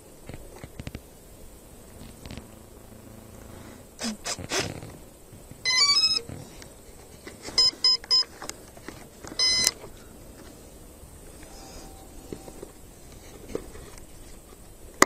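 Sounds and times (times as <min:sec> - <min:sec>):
speed controller beeping: 0:05.6 - 0:06.3, 0:09.4 - 0:09.8.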